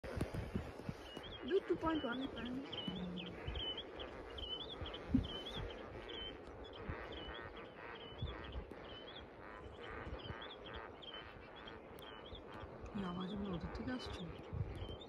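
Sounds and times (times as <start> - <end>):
flamingos chattering: 0.0 - 15.0.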